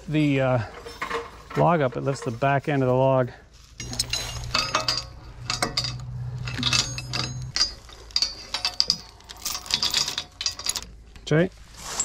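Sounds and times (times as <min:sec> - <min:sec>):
steel chain rattling and clinking: 0:00.6 - 0:02.4, 0:03.8 - 0:12.0
low steady hum: 0:03.6 - 0:11.8.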